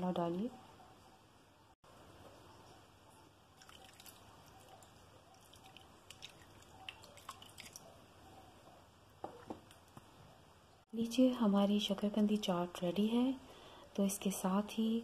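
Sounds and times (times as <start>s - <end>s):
juice dripping on food: 3.5s - 7.9s.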